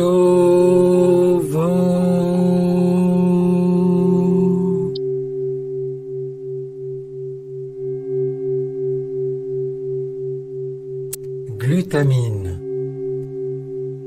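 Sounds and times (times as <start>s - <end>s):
chanted vocal drone: 0.0s - 5.1s
low steady meditation tone: 0.0s - 14.0s.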